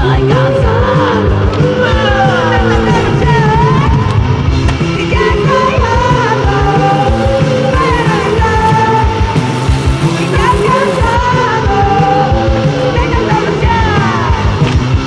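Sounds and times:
song with sung vocals: 0:00.0 - 0:15.0
steady beat: 0:01.2 - 0:07.3.

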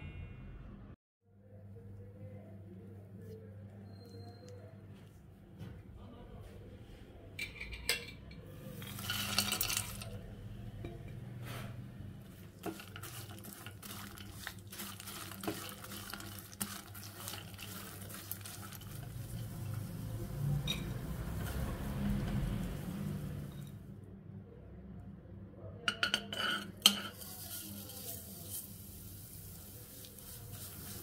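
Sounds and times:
faint sizzle: 0:08.5 - 0:23.9, 0:26.8 - 0:31.0
nuts clattering in a pan: 0:08.7 - 0:10.2, 0:12.6 - 0:19.2.

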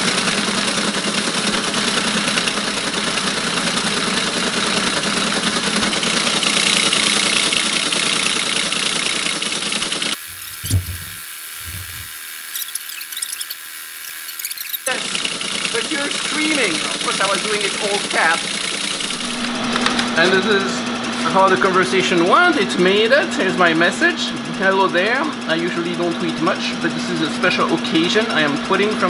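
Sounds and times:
low thumps: 0:10.2 - 0:12.7
teletype mechanical clatter: 0:10.2 - 0:19.3.

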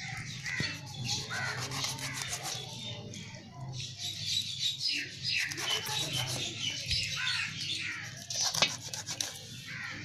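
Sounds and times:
birds calling: 0:00.0 - 0:10.0
knife scraping and cutting fish: 0:00.5 - 0:02.8, 0:05.4 - 0:06.6, 0:07.9 - 0:09.6.

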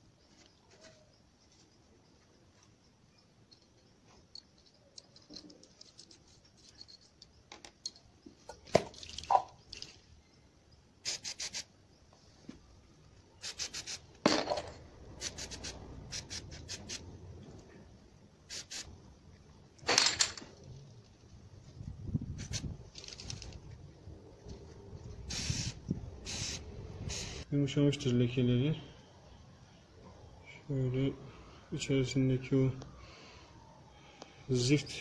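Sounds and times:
aerosol spray hissing: 0:11.0 - 0:11.7, 0:13.4 - 0:14.1, 0:15.2 - 0:17.0, 0:18.5 - 0:18.9, 0:25.3 - 0:27.4.

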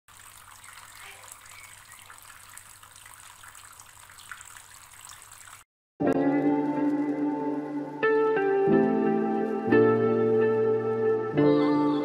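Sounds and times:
water trickling into cup: 0:00.1 - 0:05.6.

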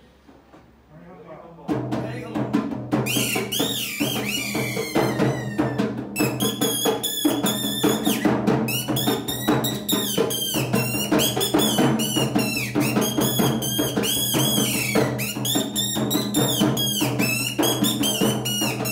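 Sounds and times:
hand drum beating quickly: 0:01.7 - 0:18.9
high warbling tone: 0:03.1 - 0:08.1.

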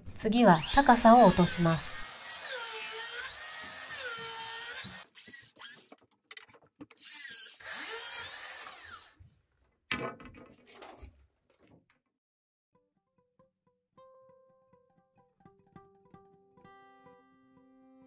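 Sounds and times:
circular saw ripping wood: 0:00.6 - 0:09.2.

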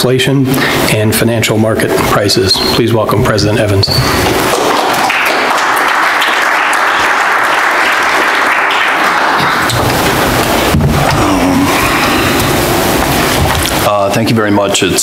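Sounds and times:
audience applauding: 0:04.2 - 0:13.8.

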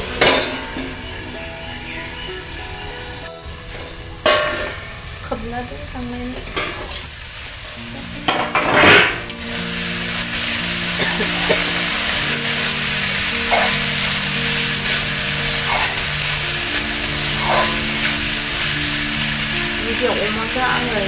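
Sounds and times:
meat sizzling in a wok: 0:00.0 - 0:21.0
metal spatula scraping a pan: 0:11.1 - 0:18.7.

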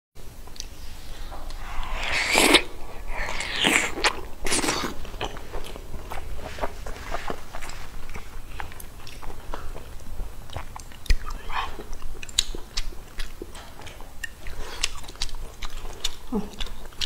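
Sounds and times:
wet bites and sucks: 0:01.5 - 0:05.4
smacking chews with clicks: 0:03.9 - 0:17.0.

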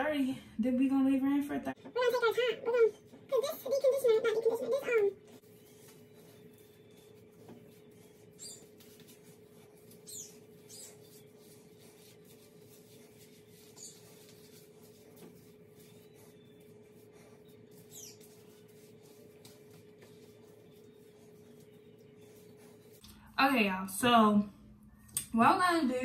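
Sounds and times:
steady low hum: 0:00.0 - 0:26.0.

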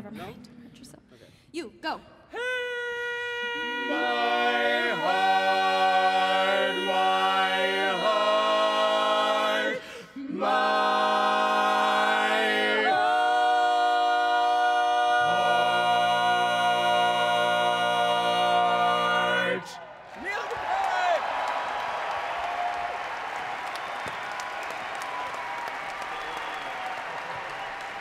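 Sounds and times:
a cappella close-harmony singing: 0:03.2 - 0:19.8.

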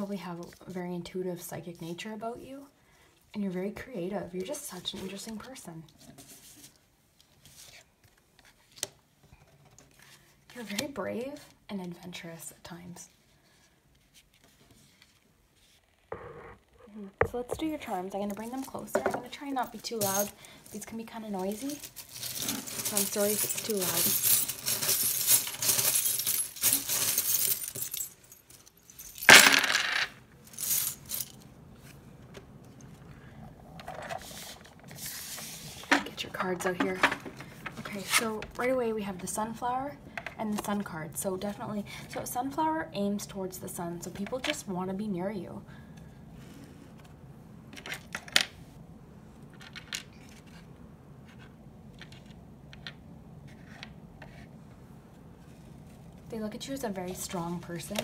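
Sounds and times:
small metal charms rattling: 0:18.3 - 0:29.7
charms clattering on wooden tray: 0:21.4 - 0:31.4, 0:49.5 - 0:50.6.

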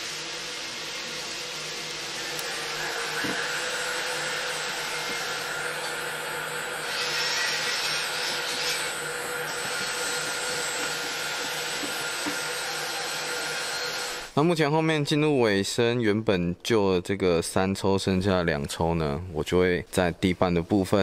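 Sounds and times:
heat gun blowing air: 0:00.0 - 0:14.4.

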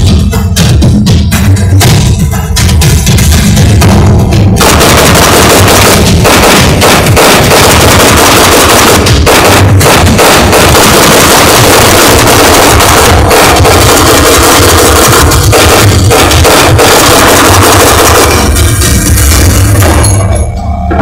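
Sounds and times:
battle music with heavy drums: 0:00.0 - 0:21.0
explosions: 0:04.6 - 0:18.8
gunfire: 0:04.6 - 0:19.6.

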